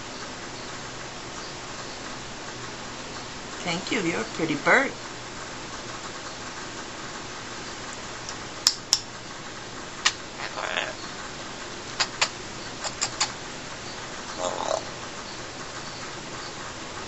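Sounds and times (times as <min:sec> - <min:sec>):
parrot beak clicks: 0:08.3 - 0:09.1, 0:12.0 - 0:13.4
parrot rasp: 0:12.0 - 0:13.4, 0:14.4 - 0:15.0.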